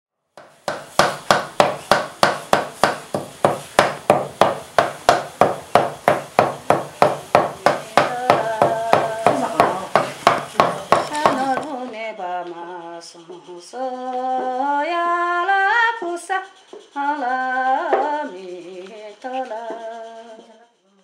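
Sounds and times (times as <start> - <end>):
knife chopping on wooden board: 0.4 - 11.7.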